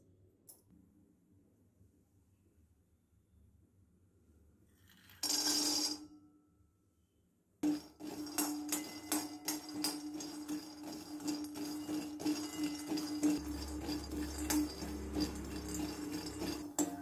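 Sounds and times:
metal ladle scraping nuts in pan: 7.6 - 17.0
pan ringing: 7.6 - 17.0
nuts poured into pan rattling: 7.8 - 17.0.

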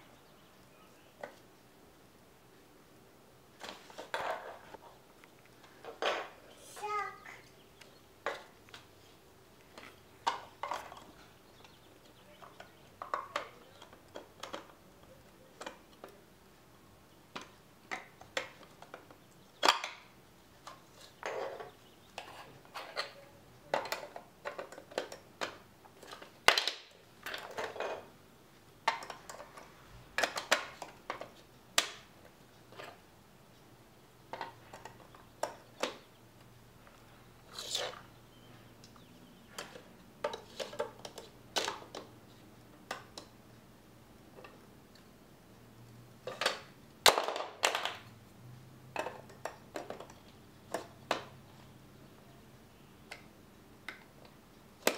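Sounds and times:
plastic bricks clicking: 9.7 - 14.8, 17.3 - 28.1, 28.8 - 33.0, 34.3 - 36.1, 38.8 - 42.2, 48.9 - 51.4.

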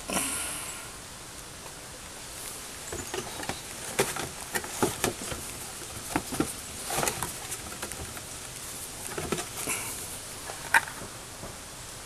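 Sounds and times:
taps clicks and rustles of handling: 2.9 - 11.6.

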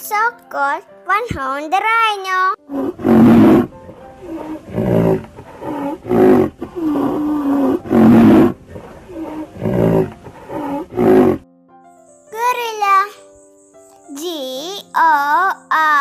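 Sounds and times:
rhinoceros grunting calls: 2.7 - 11.4.

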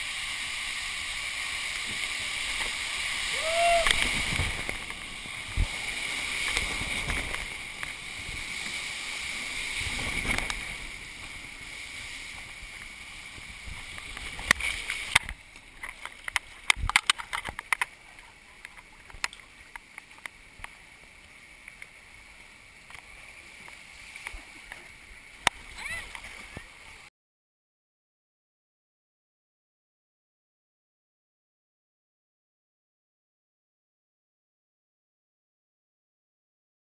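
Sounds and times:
water rushing down slide: 0.0 - 27.1
water splashes and drips: 0.0 - 27.1.

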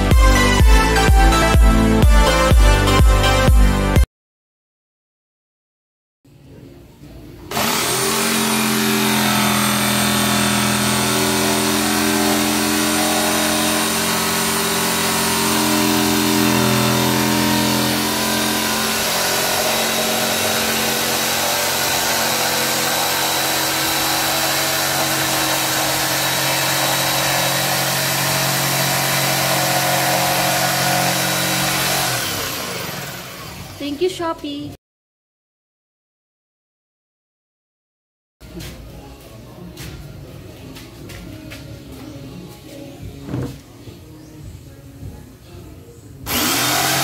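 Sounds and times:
saw blade rasping through wood: 7.5 - 33.6, 46.3 - 47.0
jigsaw motor whine: 7.5 - 33.8, 46.3 - 47.0.

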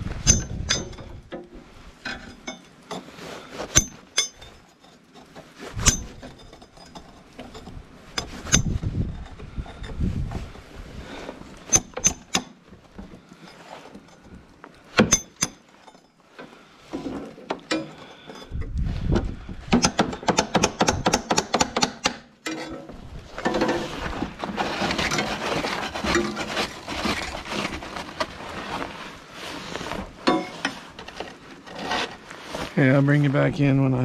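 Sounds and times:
ice crunching: 23.0 - 33.8.

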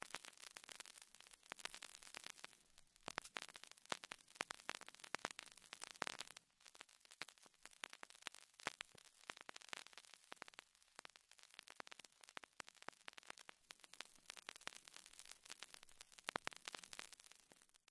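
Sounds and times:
crackling clicks: 0.0 - 17.9.

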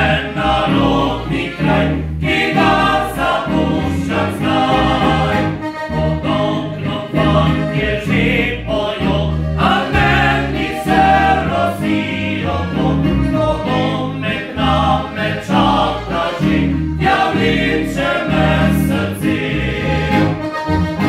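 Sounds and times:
men singing in harmony: 0.0 - 5.6, 6.2 - 20.3
bass line: 0.0 - 21.0
button accordion: 0.0 - 21.0
guitars: 0.0 - 21.0.

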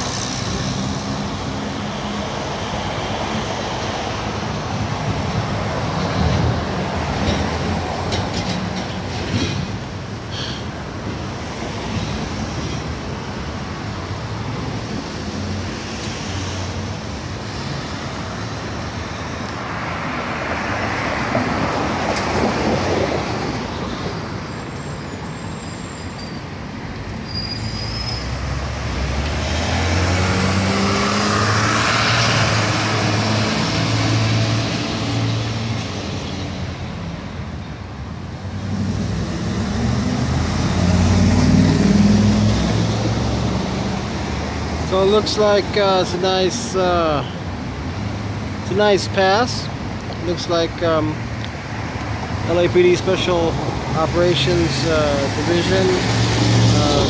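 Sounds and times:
vehicles passing: 0.0 - 57.0
faint high squeal: 24.5 - 26.5, 27.2 - 28.4.

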